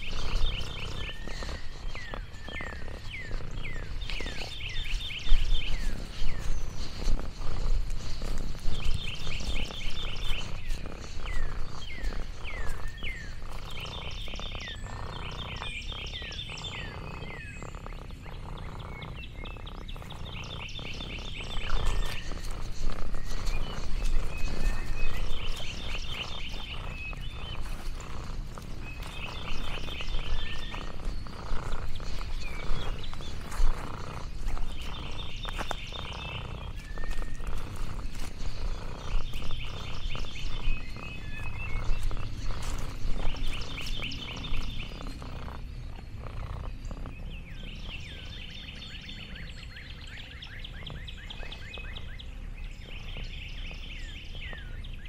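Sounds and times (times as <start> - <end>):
pulsed animal trills: 0.0 - 48.3
steady low rumble: 0.0 - 55.0.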